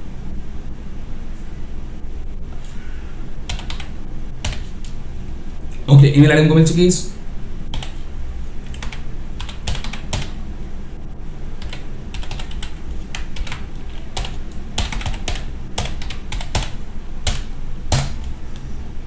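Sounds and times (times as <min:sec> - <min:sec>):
low steady hum: 0:00.0 - 0:19.0
typing on a keyboard: 0:03.5 - 0:04.7, 0:07.8 - 0:08.0, 0:08.7 - 0:10.4, 0:11.6 - 0:18.3.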